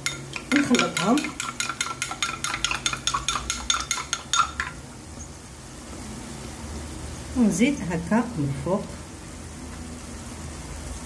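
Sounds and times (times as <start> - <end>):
spoon tapping ceramic bowl: 0.0 - 4.8.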